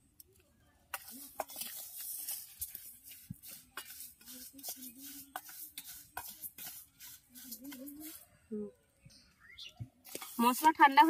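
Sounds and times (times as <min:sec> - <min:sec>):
spoon stirring spices in metal bowl: 0:00.9 - 0:08.4, 0:10.0 - 0:11.0.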